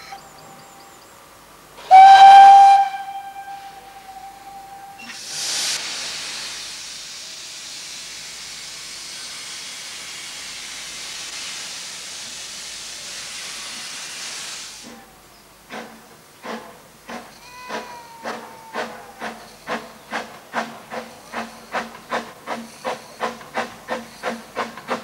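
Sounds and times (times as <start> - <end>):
steam locomotive whistle: 1.8 - 5.2
steam hissing: 1.8 - 25.0.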